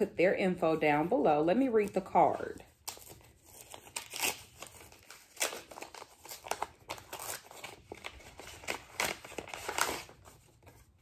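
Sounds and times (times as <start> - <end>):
paper rustling and crinkling: 2.3 - 11.0.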